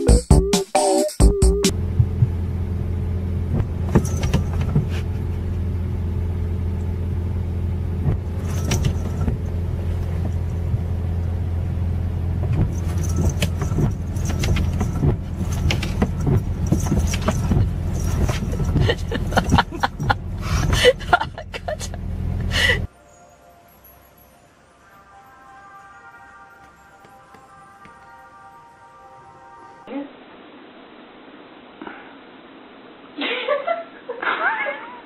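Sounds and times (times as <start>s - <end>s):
car engine humming: 1.4s - 22.9s
windshield wipers squeaking: 3.4s - 22.5s.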